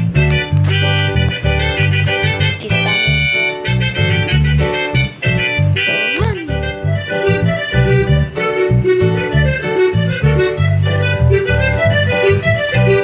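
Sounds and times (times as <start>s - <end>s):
electronic keyboards playing upbeat tune: 0.0s - 13.0s.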